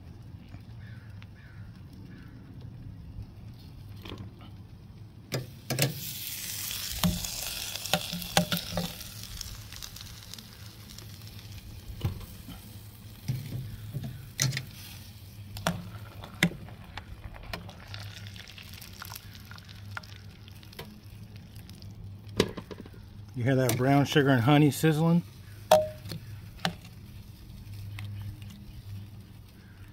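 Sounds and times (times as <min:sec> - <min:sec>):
sauce sizzling in a pot: 0:05.5 - 0:16.5, 0:17.6 - 0:22.0.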